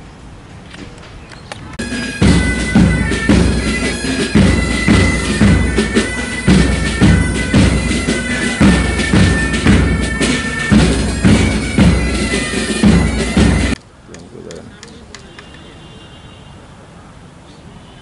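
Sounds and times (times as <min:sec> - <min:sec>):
marching band playing: 0:01.8 - 0:13.8.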